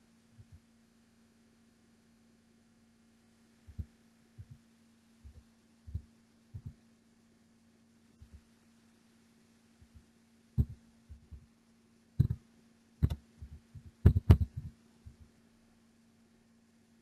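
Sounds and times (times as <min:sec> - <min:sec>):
low electrical hum: 0:00.0 - 0:17.0
keyboard keystrokes: 0:13.0 - 0:14.7.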